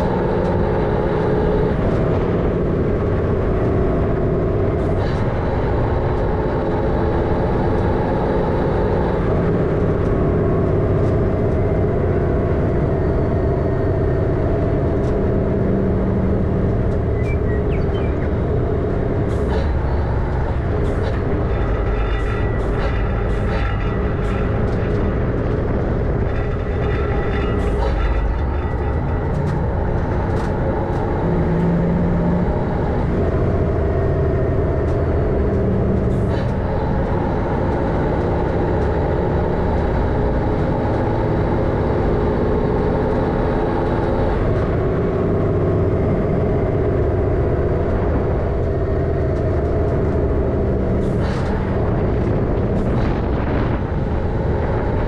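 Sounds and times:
truck diesel engine running: 0.0s - 55.0s
sharp knocks and rattles: 19.4s - 41.4s.

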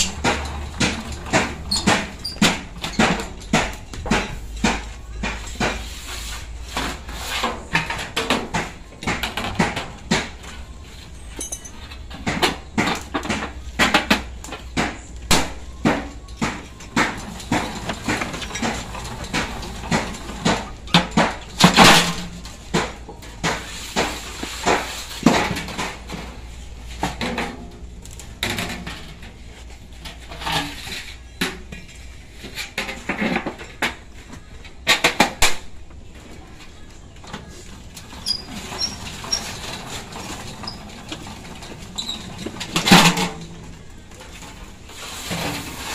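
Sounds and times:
sheet metal clanking and rattling: 0.0s - 5.7s, 38.0s - 45.9s.

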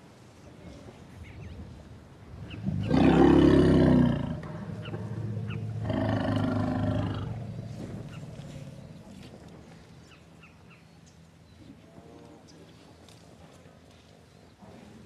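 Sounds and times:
elephant calling: 2.5s - 9.3s.

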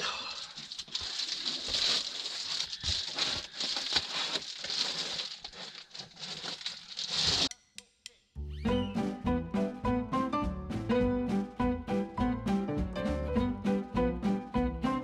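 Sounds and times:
foil insulation crinkling: 0.0s - 7.5s.

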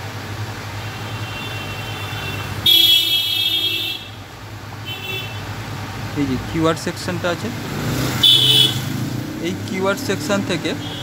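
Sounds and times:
vehicle horns honking: 0.8s - 4.2s, 4.8s - 5.5s, 8.2s - 8.9s, 10.7s - 11.0s.

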